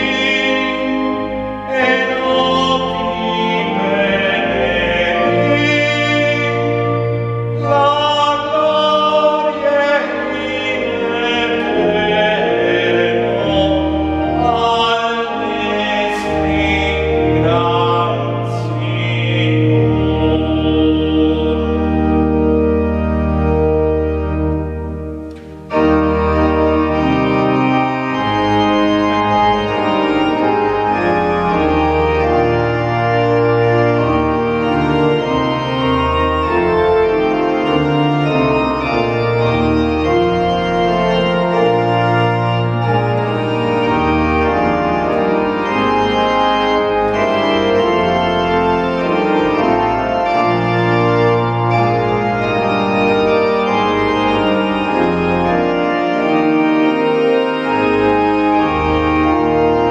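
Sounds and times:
church organ chords: 0.0 - 59.9.

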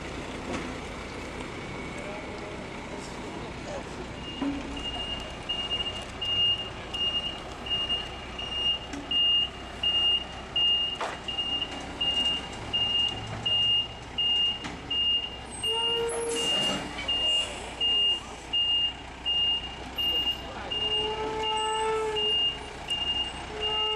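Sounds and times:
heavy tractor rumbling: 0.0 - 23.9
truck back-up alarm beeping: 4.1 - 23.9.

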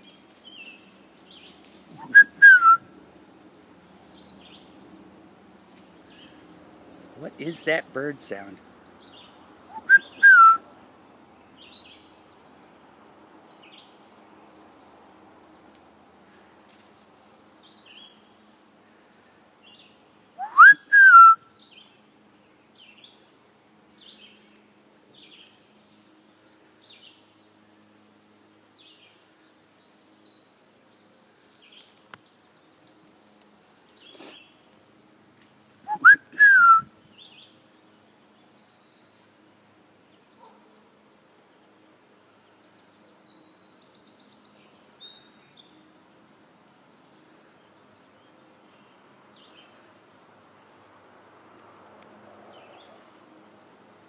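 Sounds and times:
person whistling bird call: 2.0 - 2.8, 9.7 - 10.6, 20.4 - 21.4, 35.9 - 36.9.

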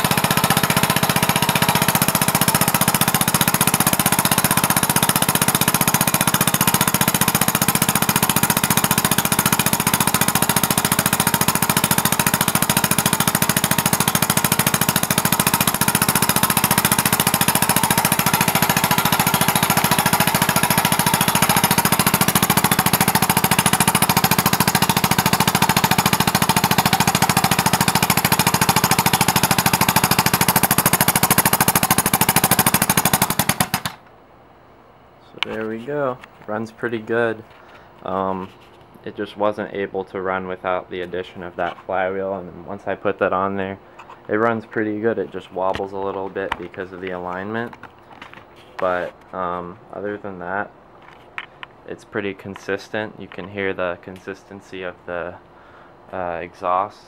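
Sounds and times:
air engine exhaust puffs chattering: 0.0 - 34.0.

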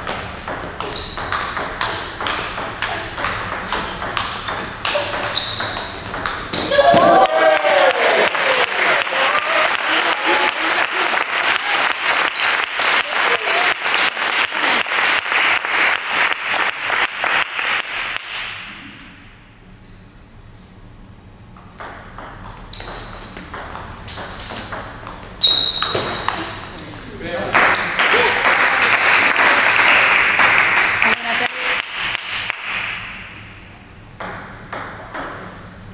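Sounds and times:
rhythmic clapping: 6.2 - 18.7, 27.5 - 33.1.

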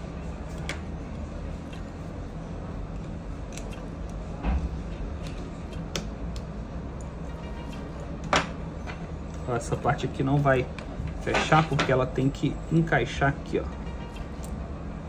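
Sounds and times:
steady low hum: 0.0 - 15.0
smartphone parts clicking: 2.9 - 4.2.

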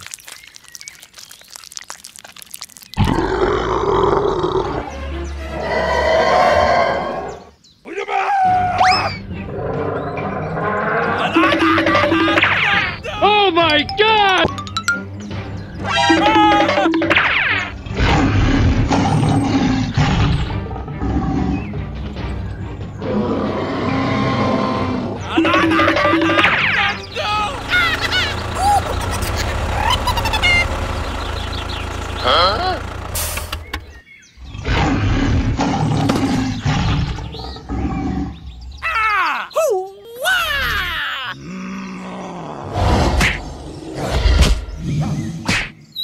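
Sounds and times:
creature roar: 3.0 - 4.8, 38.8 - 43.2
cheerful background music: 13.0 - 17.7.

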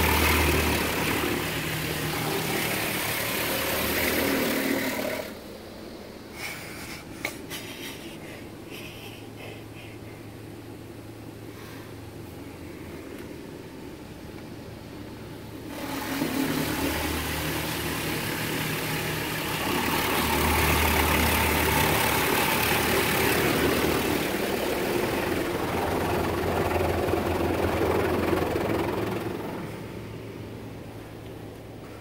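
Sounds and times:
car wash brushes spinning: 0.0 - 5.5, 15.6 - 30.4
motor hum: 0.0 - 7.0, 8.4 - 32.0.

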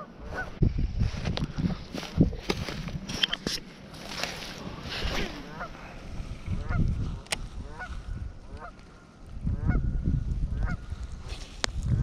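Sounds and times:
goose honking: 5.1 - 5.9, 6.6 - 6.9, 7.6 - 8.8, 9.5 - 9.9.

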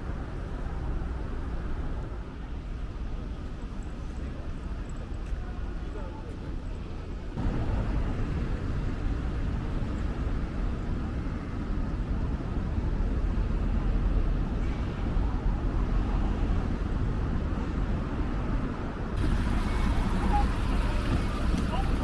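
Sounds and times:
wind rumbling on microphone: 0.0 - 22.0.

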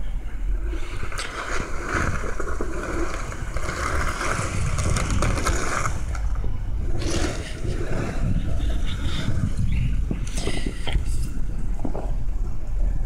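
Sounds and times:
tyres pushing through snow: 0.7 - 9.9.

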